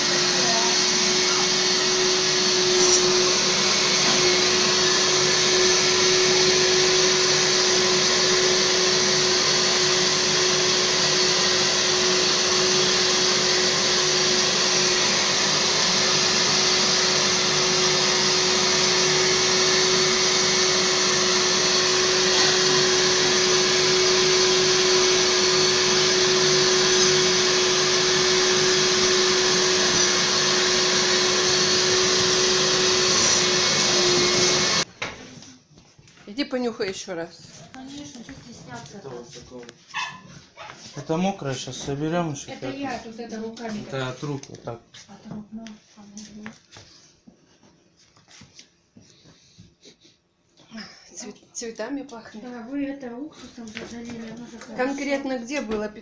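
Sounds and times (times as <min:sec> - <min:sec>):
washing vacuum whining: 0:00.0 - 0:35.5, 0:52.5 - 0:56.0.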